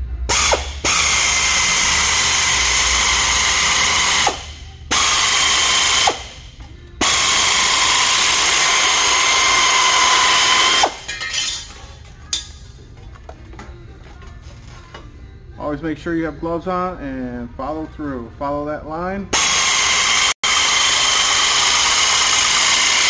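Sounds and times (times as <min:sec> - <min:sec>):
air shears whining through metal: 0:00.0 - 0:11.2, 0:19.3 - 0:23.0.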